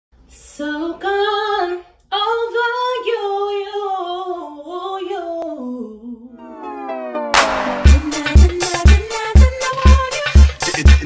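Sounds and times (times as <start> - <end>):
woman singing unaccompanied: 0.4 - 6.4, 8.0 - 10.5.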